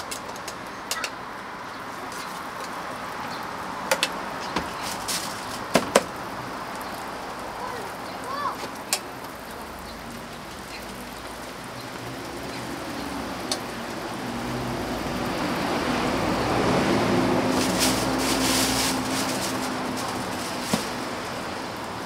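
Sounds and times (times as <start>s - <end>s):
vehicle engine passing: 9.6s - 22.0s.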